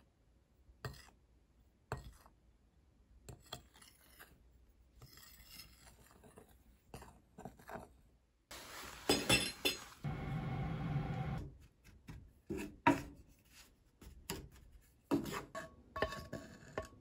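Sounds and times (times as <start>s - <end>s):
spoon scraping through powder: 3.4s - 7.8s
metal spoon clinking glass bowl: 9.1s - 9.9s.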